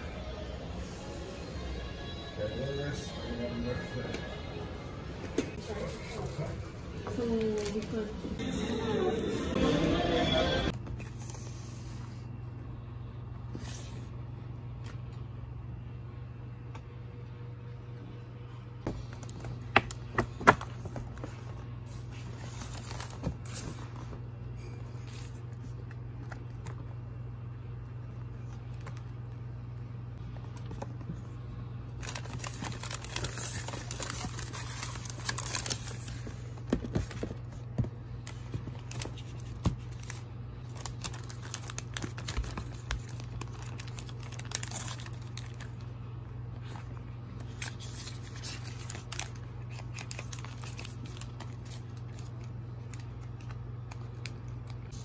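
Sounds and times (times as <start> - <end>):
low hum: 0.0 - 55.0
paper and plastic crinkling: 19.0 - 26.9, 30.4 - 55.0.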